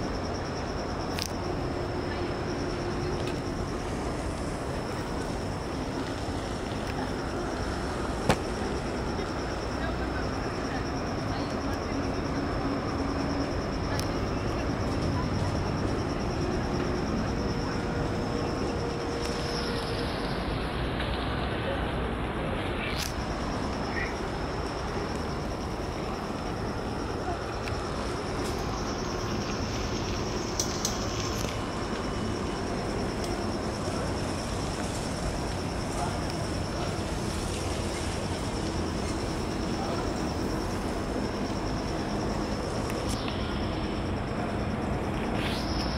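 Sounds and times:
insects chirping: 0:00.0 - 0:45.9
low city rumble: 0:00.0 - 0:45.9
faint clicks: 0:30.5 - 0:32.1.

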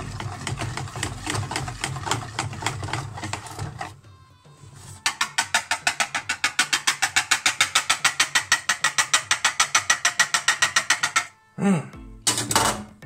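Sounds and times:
batter beaten in a bowl: 0:00.0 - 0:04.0, 0:04.9 - 0:11.3.

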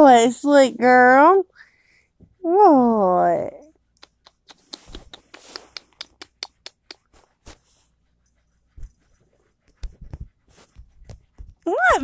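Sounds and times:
soft rustling: 0:07.1 - 0:12.0.

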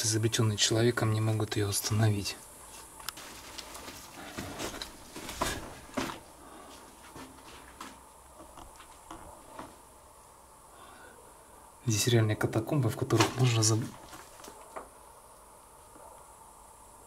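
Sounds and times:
footsteps on concrete and debris: 0:02.7 - 0:08.0.

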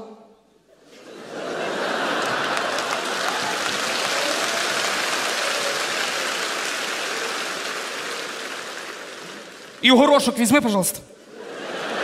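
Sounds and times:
audience applauding: 0:01.3 - 0:10.8.

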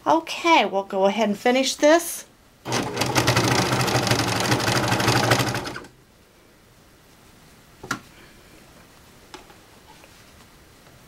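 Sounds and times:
serger stitching: 0:02.7 - 0:05.9.

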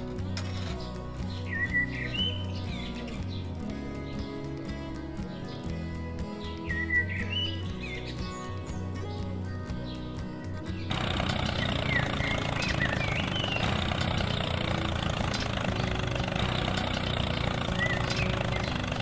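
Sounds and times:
bird chirps: 0:00.6 - 0:04.3, 0:06.4 - 0:09.2, 0:10.8 - 0:19.0
engine running: 0:10.9 - 0:19.0.

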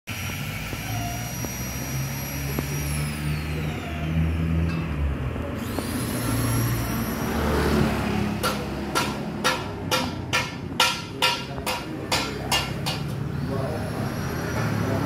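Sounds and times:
high whine: 0:00.1 - 0:07.6
vehicle engine rumbling: 0:00.1 - 0:15.0.

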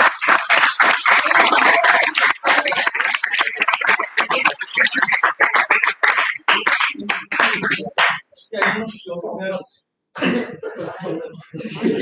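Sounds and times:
audience clapping: 0:00.0 - 0:09.0.

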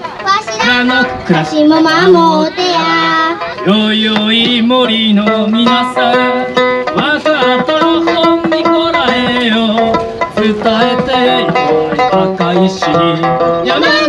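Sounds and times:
person singing: 0:00.5 - 0:14.0
three-stringed lute: 0:03.2 - 0:14.0
man singing low: 0:03.7 - 0:14.0.

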